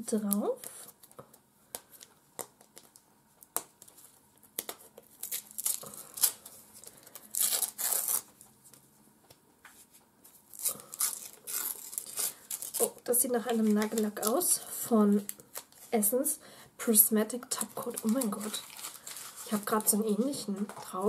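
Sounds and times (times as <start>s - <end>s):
gift wrapping rustling: 3.8s - 8.4s, 10.3s - 16.1s, 17.5s - 21.0s
wrapping paper ripping: 3.8s - 8.4s, 10.5s - 14.6s, 17.5s - 20.4s.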